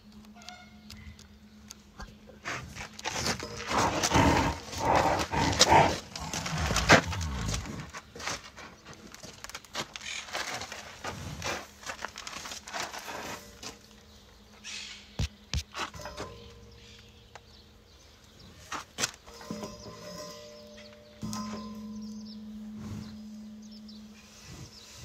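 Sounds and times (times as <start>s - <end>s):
rhinoceros blowing breaths: 2.3s - 8.1s, 22.6s - 25.0s.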